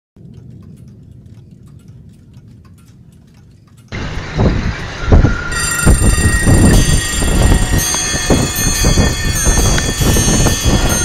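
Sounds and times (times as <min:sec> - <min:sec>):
light clicks: 0:00.2 - 0:04.0
wind buffeting microphone: 0:00.2 - 0:11.0.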